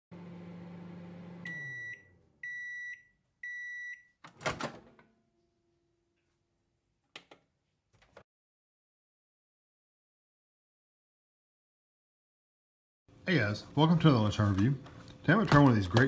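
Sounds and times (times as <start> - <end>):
microwave oven humming: 0.1 - 2.7
microwave beeps: 1.1 - 4.2.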